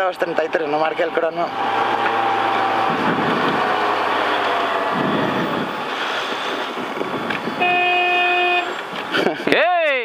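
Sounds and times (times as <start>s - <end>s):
road noise: 0.0s - 10.0s
car engine running: 1.4s - 7.6s
wind noise: 1.5s - 9.5s.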